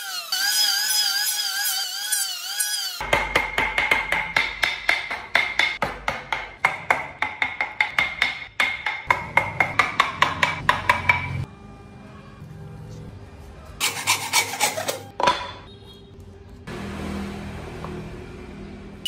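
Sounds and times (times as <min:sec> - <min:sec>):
hammer striking chisel: 0:03.0 - 0:11.5.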